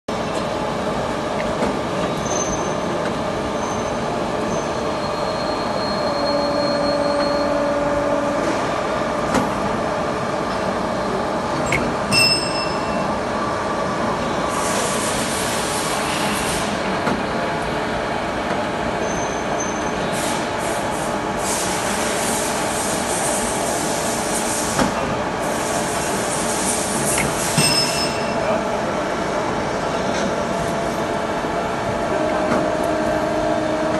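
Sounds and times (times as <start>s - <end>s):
brief machine whines: 4.6s - 8.4s.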